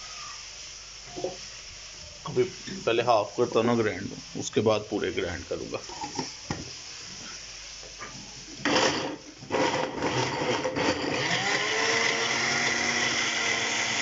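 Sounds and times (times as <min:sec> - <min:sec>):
blender motor grinding: 0:08.6 - 0:14.0.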